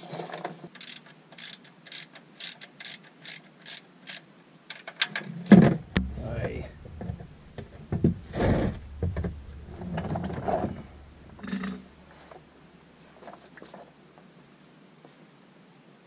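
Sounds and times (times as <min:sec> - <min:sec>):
knocks and handling rustles: 0:05.0 - 0:13.9.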